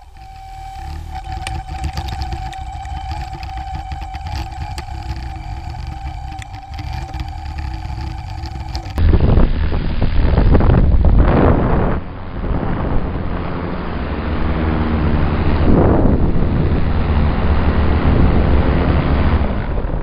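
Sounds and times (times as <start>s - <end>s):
steady high whine: 0.0s - 13.3s
low wind rumble: 0.0s - 20.0s
wind buffeting microphone: 0.0s - 20.0s.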